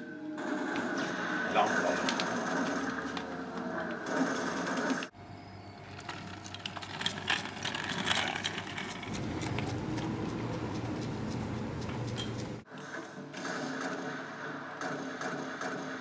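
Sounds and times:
outdoor ambience: 0.0 - 16.0
video game gunfire and effects: 0.4 - 5.1, 12.8 - 16.0.

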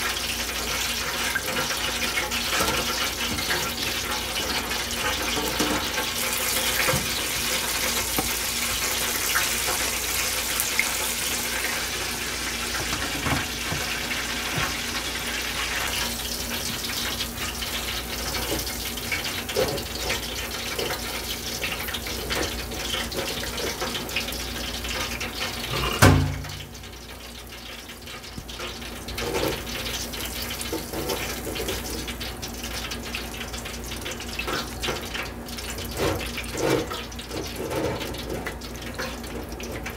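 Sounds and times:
fish sizzling in hot oil: 0.0 - 39.9
spatula scraping wire basket: 35.9 - 38.5.

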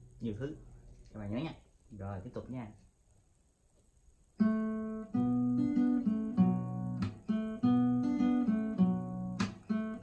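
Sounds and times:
acoustic guitar strumming: 4.4 - 10.0.

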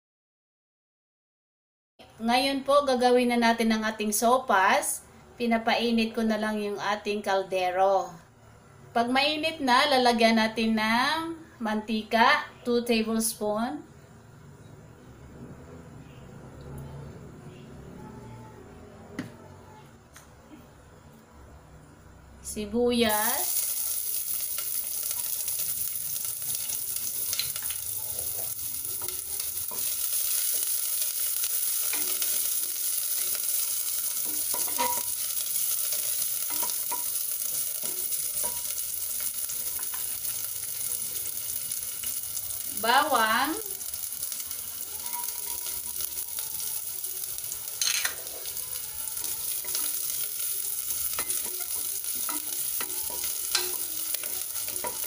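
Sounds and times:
onion sizzling in hot oil: 22.8 - 55.0.

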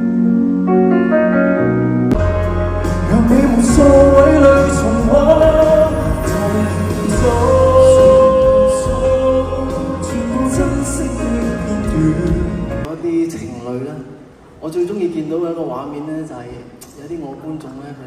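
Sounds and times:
band accompaniment: 2.0 - 12.9
man singing into microphone: 3.0 - 12.9.

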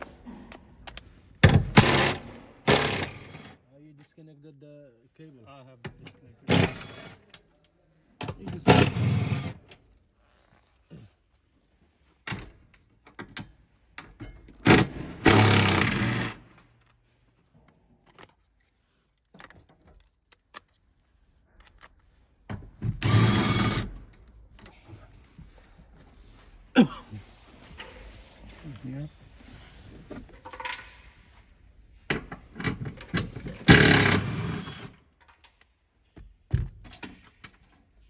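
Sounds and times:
bursts of tool noise: 14.7 - 16.4, 23.0 - 23.9, 33.7 - 35.0.

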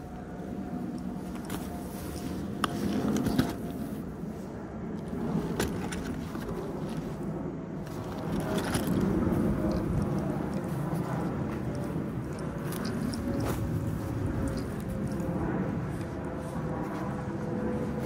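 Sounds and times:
nylon rain gear rustling: 0.0 - 18.0.

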